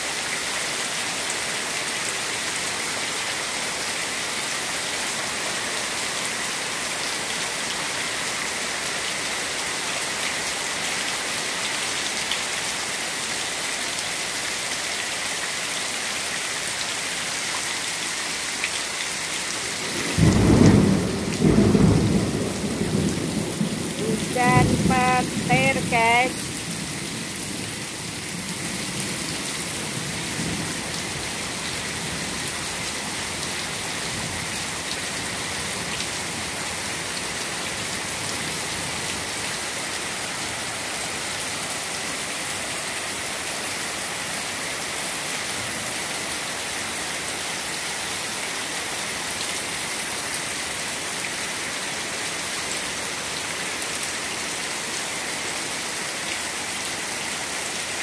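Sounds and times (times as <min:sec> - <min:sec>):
heavy rain on standing water: 0:00.0 - 0:58.0
low thunder rumbling: 0:19.8 - 0:25.5.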